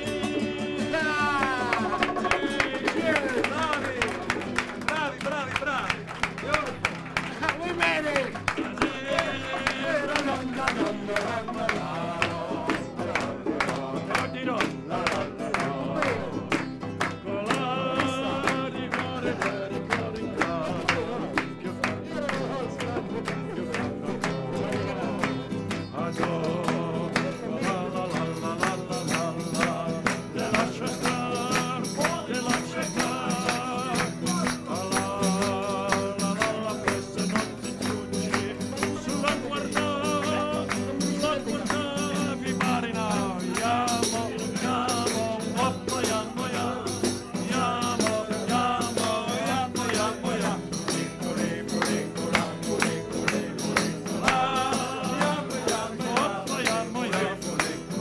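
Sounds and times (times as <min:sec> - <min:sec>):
man singing with vibrato: 0:00.0 - 0:06.7, 0:07.3 - 0:58.0
acoustic guitar strummed: 0:00.0 - 0:58.0
tambourine jingling: 0:28.3 - 0:58.0.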